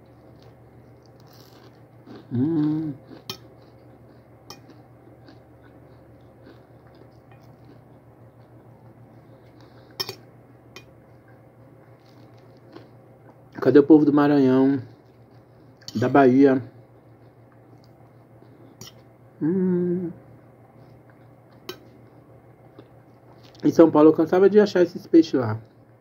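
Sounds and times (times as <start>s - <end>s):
steady low hum: 0.0s - 26.0s
person humming: 2.3s - 3.0s, 19.4s - 20.2s
fork clinking against plate: 4.5s - 4.8s, 10.0s - 10.2s, 18.8s - 19.0s, 21.6s - 21.9s.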